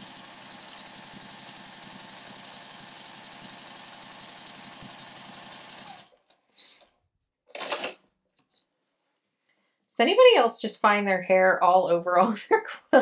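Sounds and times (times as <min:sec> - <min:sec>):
sewing machine stitching: 0:00.0 - 0:06.2, 0:07.5 - 0:08.0.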